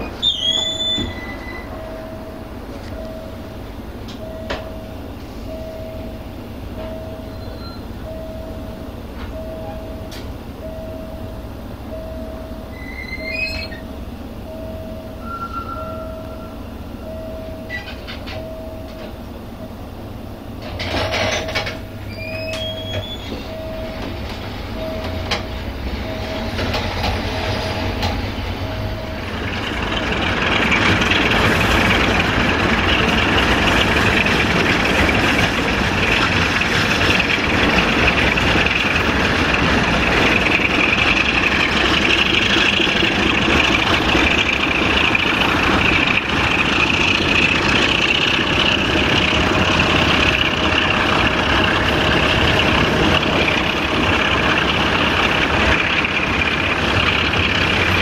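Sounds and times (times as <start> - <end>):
wheel squeals: 0.0 - 2.2, 6.8 - 8.1, 12.7 - 14.0, 15.2 - 16.6, 17.5 - 19.1, 20.7 - 58.0
train engine and wheels rumbling: 0.0 - 58.0.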